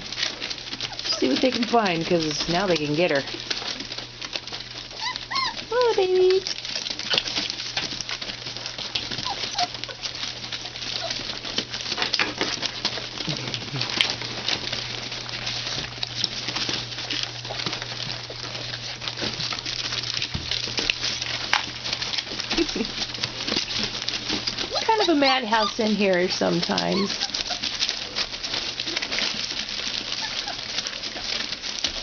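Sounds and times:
newspaper crackling and rustling: 0.0s - 32.0s
puppies scrabbling: 0.0s - 32.0s
puppy squeaks: 4.9s - 5.7s, 9.2s - 10.0s, 24.7s - 25.9s, 26.8s - 27.7s, 30.2s - 31.3s.

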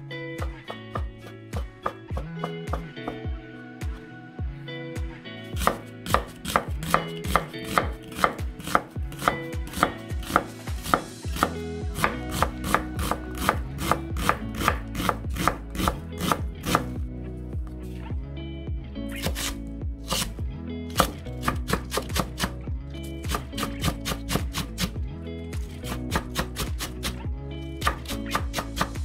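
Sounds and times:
knife chopping on wooden board: 5.6s - 16.9s, 21.0s - 22.5s, 25.6s - 27.2s, 27.8s - 29.0s.

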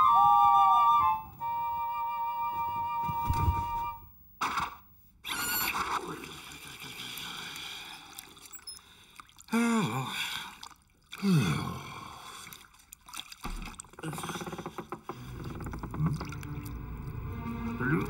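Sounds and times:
bathwater sloshing: 6.1s - 18.0s
scrubbing: 12.4s - 17.2s.

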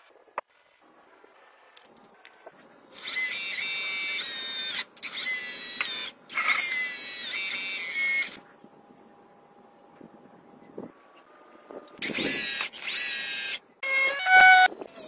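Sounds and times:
electric motor and hydraulic pump whining: 1.0s - 8.5s, 11.8s - 15.0s.

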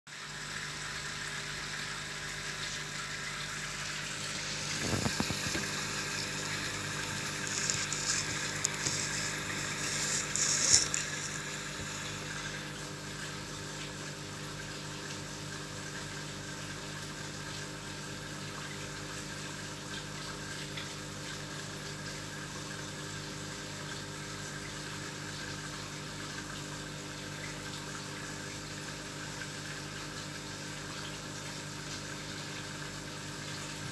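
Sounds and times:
air pump humming: 0.4s - 30.6s
air bubbling into water: 4.1s - 12.8s.

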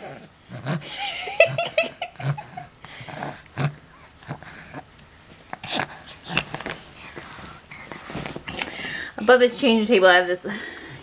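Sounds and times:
baby vocal sounds and breaths: 2.1s - 9.9s
baby sucking on foot: 2.2s - 8.8s.

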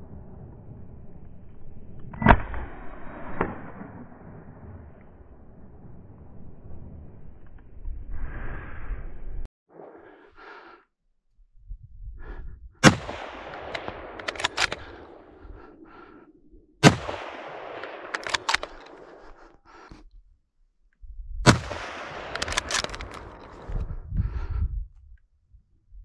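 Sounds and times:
gunshots with long echo: 12.8s - 19.8s, 21.4s - 24.0s.

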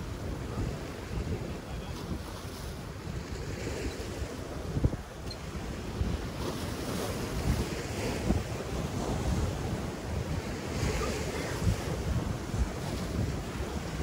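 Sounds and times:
surf washing over rocks: 0.0s - 14.0s
wind buffeting the microphone: 0.0s - 14.0s.

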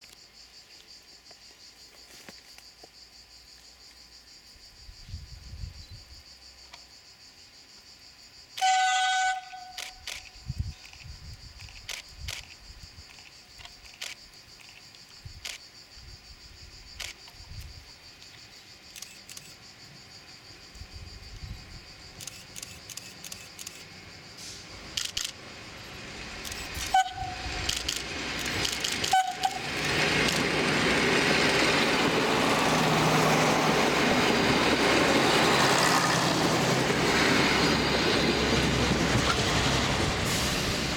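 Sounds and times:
insect chirring: 0.0s - 30.5s
train horn toots: 8.6s - 10.0s, 26.8s - 27.6s, 29.0s - 29.8s
railcar engine and wheels passing: 8.6s - 10.7s, 20.6s - 40.9s
scattered clicks: 9.8s - 15.6s, 18.2s - 19.6s, 22.2s - 23.9s, 25.0s - 25.4s, 26.4s - 27.0s, 27.6s - 30.5s.

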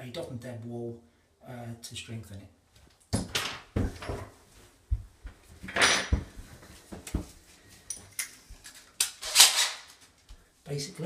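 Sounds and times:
objects knocking and clunking: 3.1s - 8.7s.

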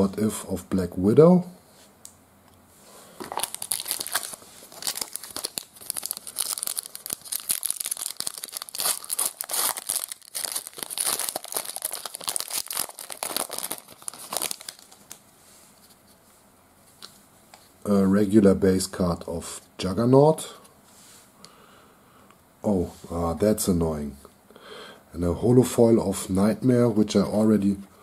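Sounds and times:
foil wrapper tearing and crinkling: 3.2s - 15.2s.

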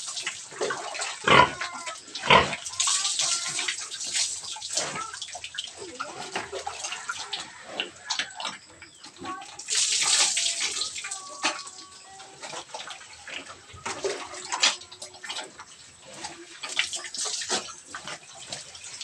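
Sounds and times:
water splashing on concrete: 0.0s - 8.5s, 9.5s - 15.7s, 16.3s - 19.0s
pig grunting: 1.1s - 3.5s.

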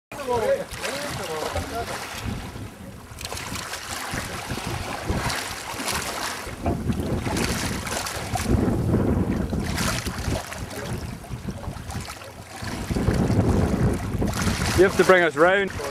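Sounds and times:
choppy sea water: 0.1s - 15.9s
wind buffeting microphone: 0.2s - 15.9s.

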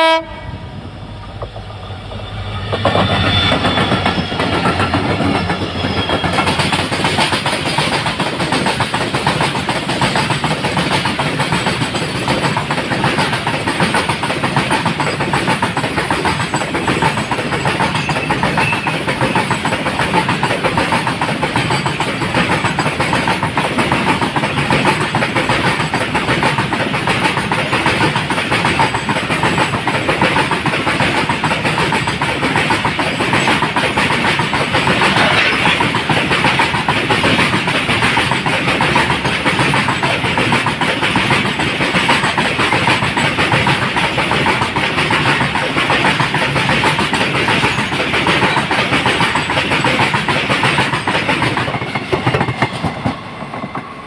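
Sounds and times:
diesel locomotives passing: 0.0s - 54.0s
train wheels rattling on rails: 0.0s - 54.0s.

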